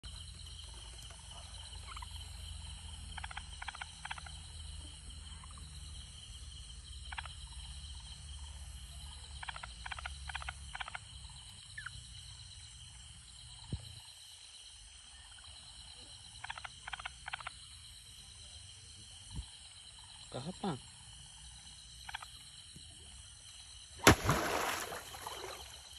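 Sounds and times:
insects trilling: 0.0s - 25.9s
frog calling: 1.5s - 5.8s, 7.0s - 11.1s, 16.3s - 17.6s.

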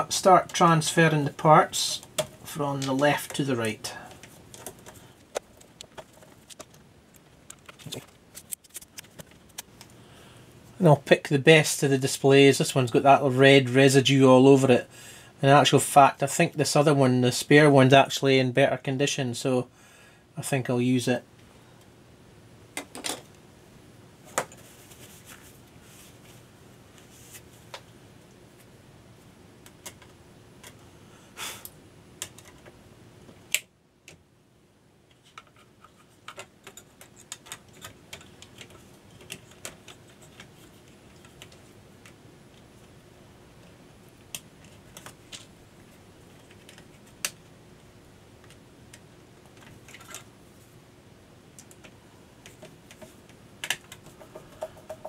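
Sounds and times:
clicks of plastic parts handled: 35.1s - 42.2s.

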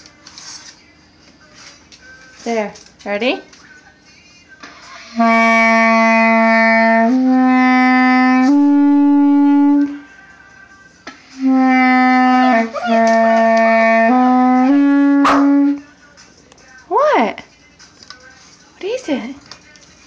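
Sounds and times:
clarinet playing long notes: 5.1s - 10.0s, 11.4s - 15.8s.

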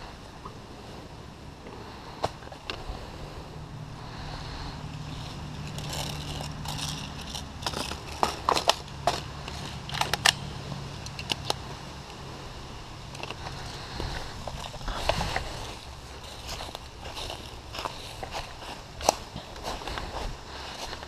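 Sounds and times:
low hum: 0.0s - 21.0s
plastic clicks of rifle handling: 5.7s - 10.4s.

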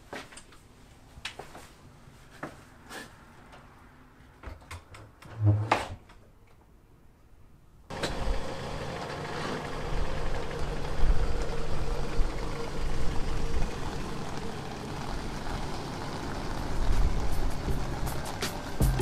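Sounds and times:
car engine low rumble: 7.9s - 19.0s.

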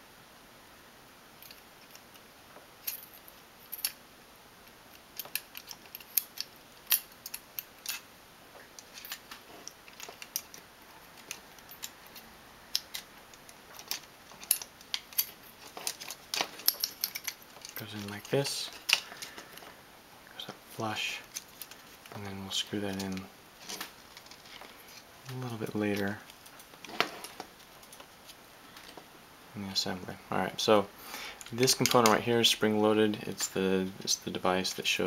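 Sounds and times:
light clicks and taps of parts: 8.6s - 19.8s, 31.3s - 32.2s.

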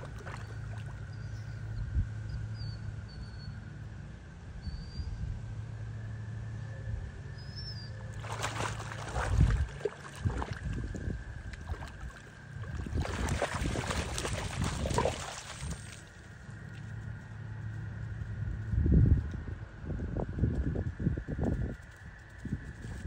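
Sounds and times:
dog splashing through water: 0.0s - 1.0s, 8.1s - 16.2s.

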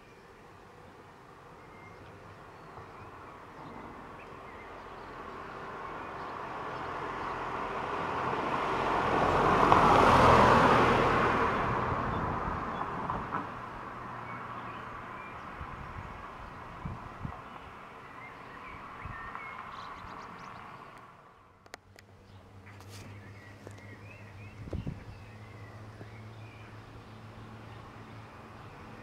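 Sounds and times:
car driving past: 2.8s - 21.4s.

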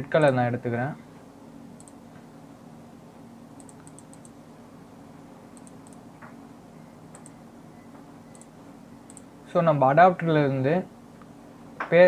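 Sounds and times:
steady low hum: 0.0s - 12.0s
computer mouse clicks: 1.8s - 2.0s, 3.6s - 4.4s, 5.6s - 6.0s, 7.1s - 7.4s, 8.3s - 8.5s, 9.1s - 9.3s.

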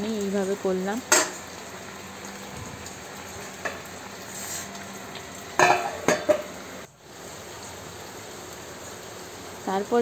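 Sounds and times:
curry sizzling in a pan: 0.0s - 10.0s
steel pan lid clanking: 1.1s - 1.4s, 5.6s - 6.5s.

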